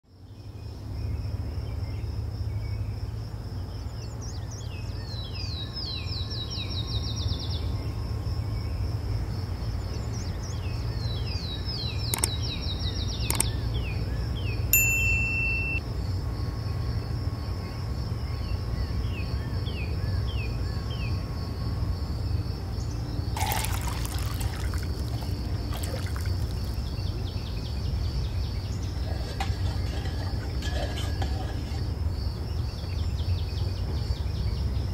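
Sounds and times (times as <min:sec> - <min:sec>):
birds singing falling trills: 0:03.8 - 0:08.0, 0:09.7 - 0:15.8, 0:22.7 - 0:31.8
short beep: 0:14.8 - 0:15.8
high insect drone: 0:15.7 - 0:34.9.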